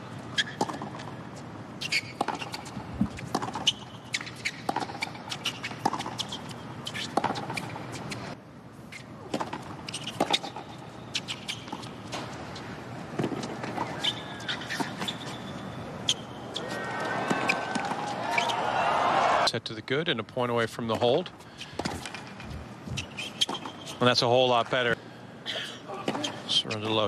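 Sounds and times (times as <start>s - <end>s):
shoes squeaking on court: 0.1s - 18.7s, 21.0s - 24.2s, 25.6s - 27.0s
rackets striking tennis ball: 0.4s - 1.2s, 1.8s - 8.3s, 9.2s - 18.6s, 21.6s - 24.0s
ball bouncing: 2.1s - 3.8s, 4.4s - 6.4s, 7.0s - 7.8s.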